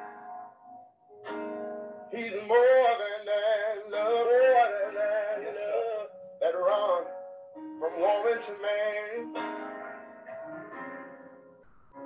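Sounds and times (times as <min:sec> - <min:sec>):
guitar: 0:00.0 - 0:12.0
man singing gospel song: 0:02.1 - 0:07.2, 0:07.8 - 0:09.4.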